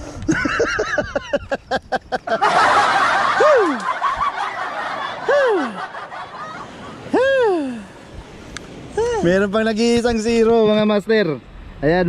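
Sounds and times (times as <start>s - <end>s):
people laughing and chattering: 0.2s - 9.4s.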